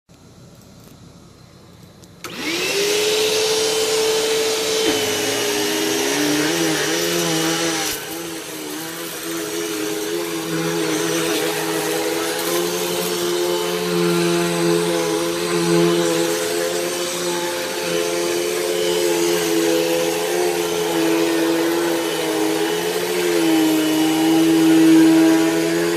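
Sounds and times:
vacuum cleaner motor running: 0:02.2 - 0:25.9.

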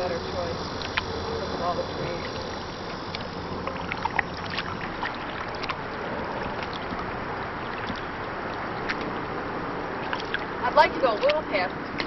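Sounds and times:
steady background hiss: 0:00.0 - 0:11.1
water drips and splashes: 0:00.0 - 0:12.0
paddle strokes in water: 0:00.7 - 0:12.0.

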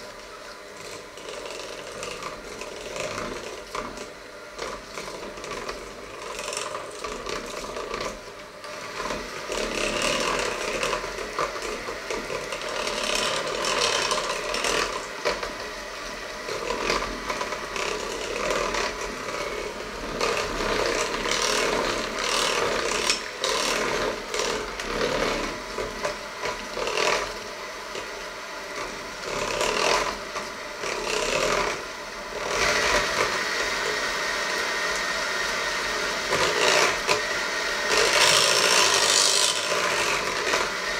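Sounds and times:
metal beaters scraping a bowl: 0:00.0 - 0:34.0, 0:36.2 - 0:40.9
hand mixer motor whine: 0:00.0 - 0:40.9.

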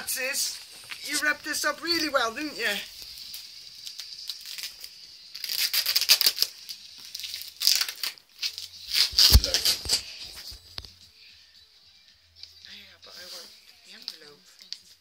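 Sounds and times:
wrapping paper tearing and crinkling: 0:00.0 - 0:10.8.

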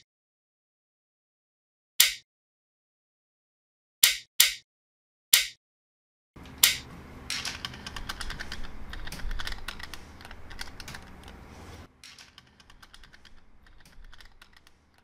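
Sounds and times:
magnetic balls clicking: 0:06.4 - 0:11.4, 0:12.0 - 0:15.0.

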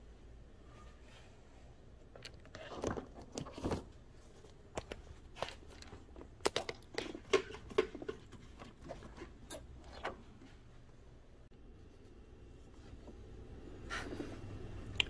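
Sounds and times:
hand handling plastic cable: 0:02.0 - 0:10.7.

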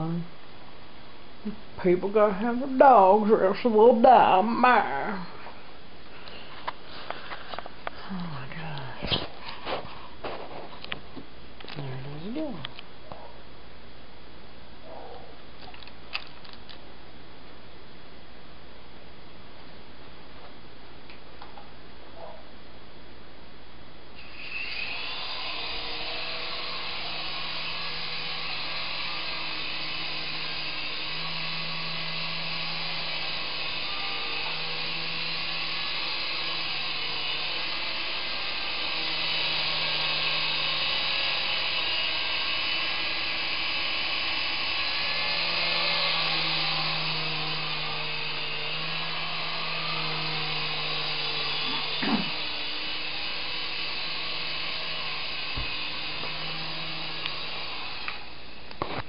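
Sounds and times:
remote-control helicopter rotors whining: 0:02.2 - 0:05.4, 0:24.2 - 0:59.0.

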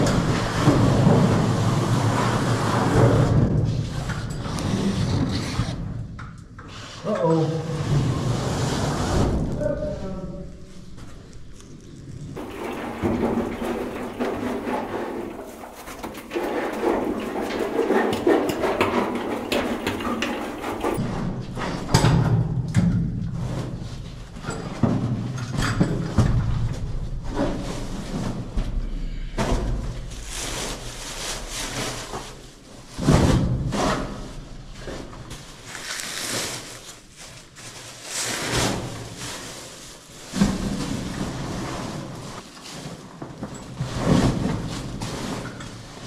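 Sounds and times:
plastic bags rustling: 0:10.4 - 0:18.2, 0:29.6 - 0:43.4
heavy bags thudding and scraping: 0:10.7 - 0:21.8, 0:23.0 - 0:46.0.

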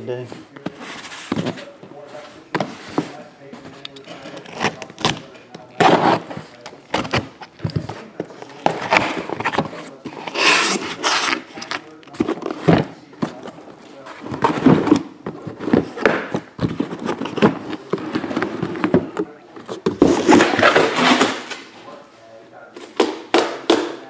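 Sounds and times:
cardboard rustling and scraping: 0:00.2 - 0:21.7
hissing cardboard scrape: 0:00.7 - 0:03.2, 0:08.0 - 0:11.7.

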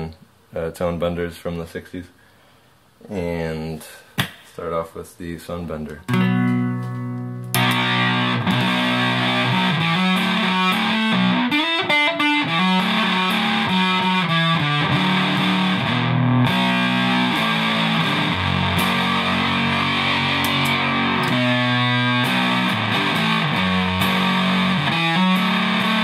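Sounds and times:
fuzz electric guitar notes: 0:06.1 - 0:26.0.

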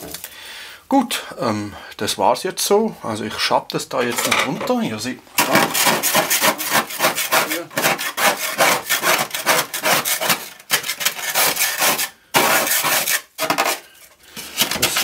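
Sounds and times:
ice scraped off freezer walls: 0:05.4 - 0:15.0.

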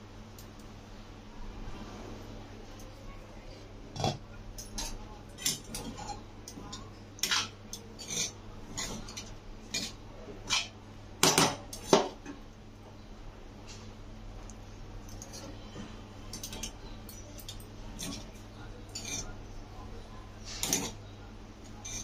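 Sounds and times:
metal spoon scraping a pan: 0:04.0 - 0:10.8, 0:16.3 - 0:19.5, 0:20.4 - 0:21.0, 0:21.8 - 0:22.0.

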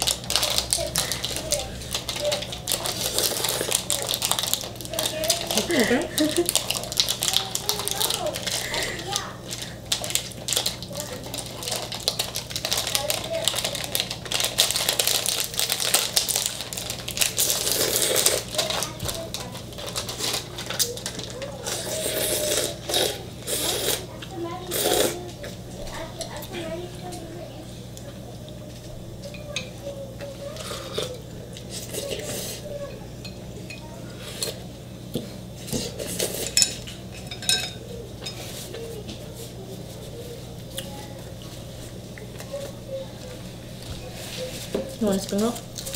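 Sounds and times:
person slurping and chewing noodles: 0:00.0 - 0:13.0, 0:13.7 - 0:18.9, 0:21.6 - 0:25.2, 0:30.6 - 0:32.6, 0:35.6 - 0:36.7
chopsticks clinking on plates: 0:35.8 - 0:38.5.

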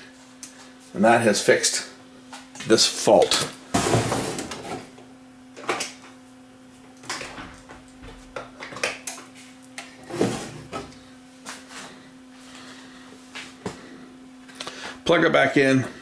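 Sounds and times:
faint steady hum: 0:00.0 - 0:16.0
objects clattering on workbench: 0:03.8 - 0:04.9.

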